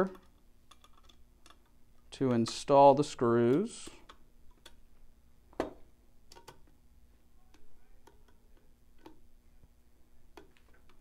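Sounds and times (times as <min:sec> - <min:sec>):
screwdriver clicks and taps: 0:09.0 - 0:09.2.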